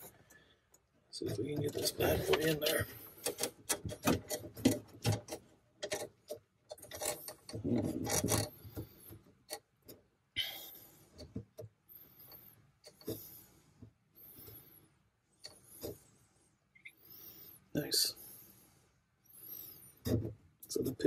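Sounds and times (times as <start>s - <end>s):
metal rubbing and scraping: 1.2s - 9.2s
small metal parts clicking: 3.2s - 8.5s.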